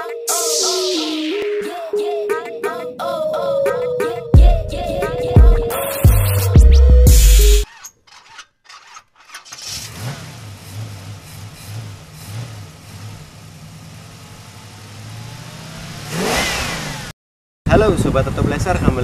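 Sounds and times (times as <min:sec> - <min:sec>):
car engine starting and idling: 0:08.2 - 0:17.1.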